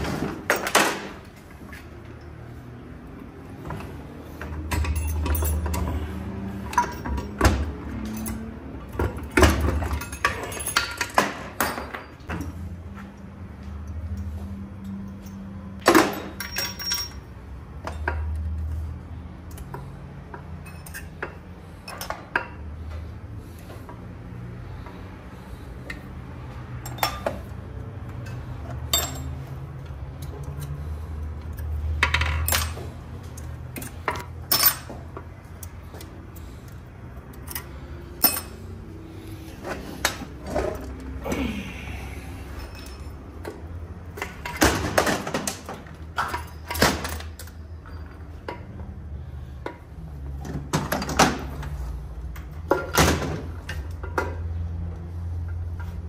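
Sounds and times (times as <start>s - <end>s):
metal tools clinking: 3.8s - 12.3s, 14.8s - 18.6s, 19.5s - 22.6s, 26.8s - 27.5s, 28.1s - 38.8s, 42.4s - 43.6s, 46.2s - 48.6s.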